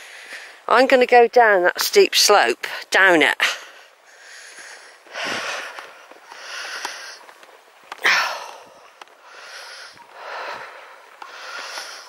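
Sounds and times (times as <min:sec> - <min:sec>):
person breathing heavily: 0:00.0 - 0:00.6, 0:03.4 - 0:07.3, 0:08.0 - 0:12.0.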